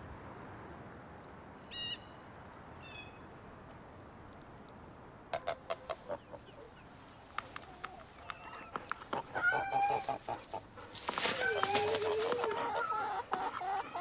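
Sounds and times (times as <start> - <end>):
outdoor hush: 0.0 - 14.0
chickens clucking: 5.3 - 14.0.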